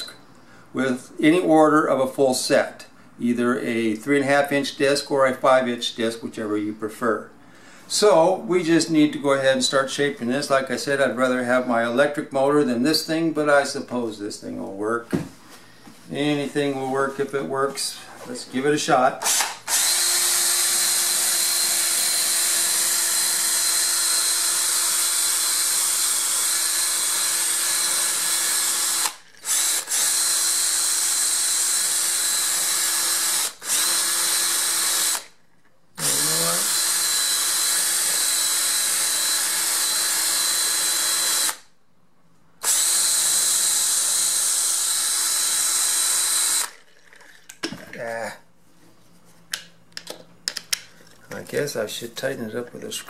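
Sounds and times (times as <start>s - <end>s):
power drill motor whine: 19.2s - 35.3s, 36.0s - 41.7s, 42.6s - 46.8s.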